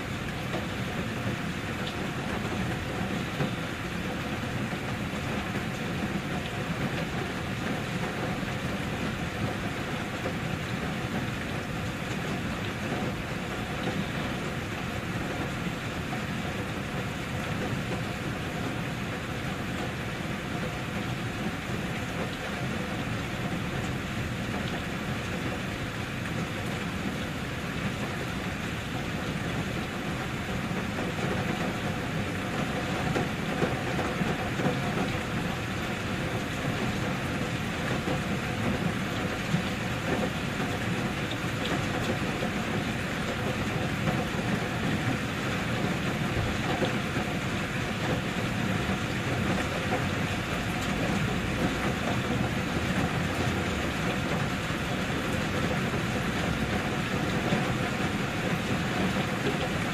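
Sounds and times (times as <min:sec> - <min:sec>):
steady rain: 0:00.0 - 0:59.9.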